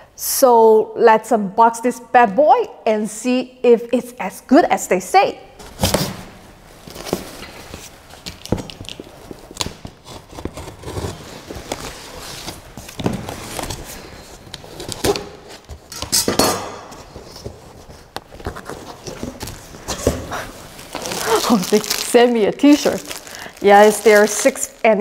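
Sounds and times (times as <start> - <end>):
scissors cutting packing tape: 8.3 - 13.0, 14.5 - 16.3.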